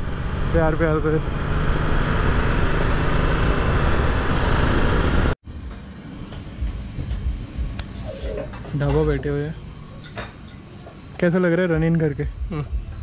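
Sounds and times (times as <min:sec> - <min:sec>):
motorcycle engine: 0:00.0 - 0:05.9.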